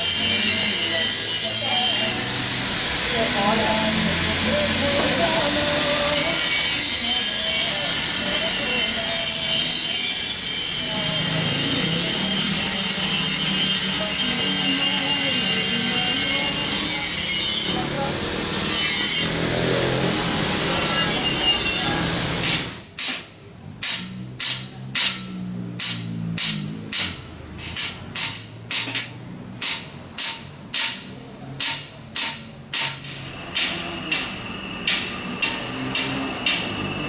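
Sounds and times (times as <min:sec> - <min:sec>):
rasping scraping on metal: 0:00.0 - 0:23.2, 0:23.8 - 0:37.0
hammer beating metal bowl: 0:23.8 - 0:27.2.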